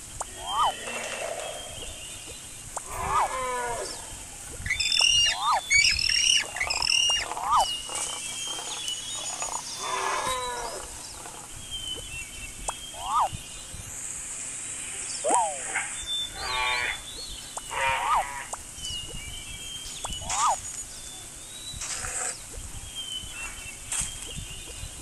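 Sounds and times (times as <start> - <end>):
high bird-like whistles: 0.0 - 14.4, 15.0 - 25.0
long falling animal cries: 0.3 - 1.8, 2.8 - 4.2, 9.8 - 11.0
short animal chirps: 4.6 - 10.8, 12.7 - 13.4.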